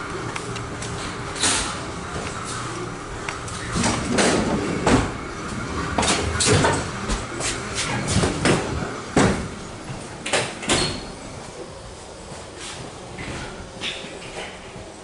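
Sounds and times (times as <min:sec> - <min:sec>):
train doors banging shut: 0:10.2 - 0:11.2.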